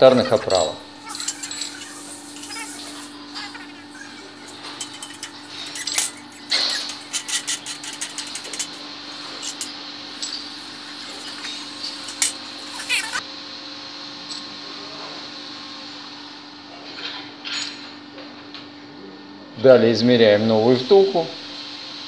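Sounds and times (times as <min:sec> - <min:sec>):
steady low hum: 0:00.0 - 0:14.9
steel parts clinking: 0:00.5 - 0:13.2.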